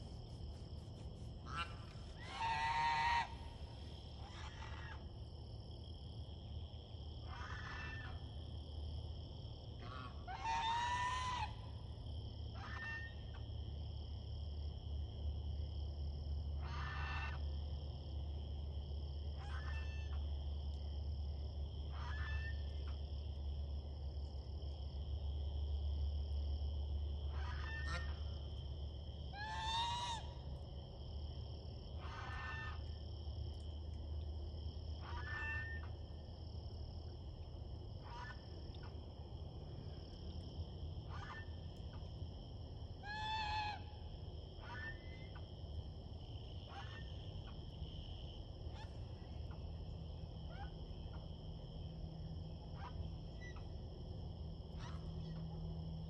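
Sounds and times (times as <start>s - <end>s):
geese honking: 1.4s - 3.6s.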